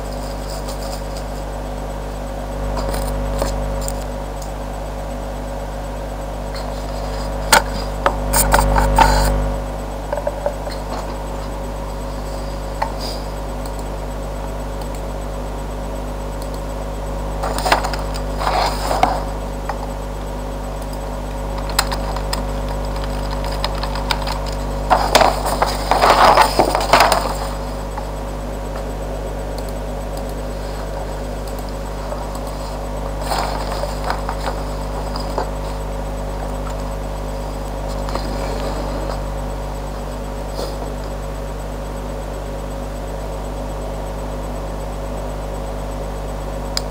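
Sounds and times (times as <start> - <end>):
steady electrical hum: 0.0 - 46.9
packaging rustling: 21.6 - 28.0, 31.9 - 35.8.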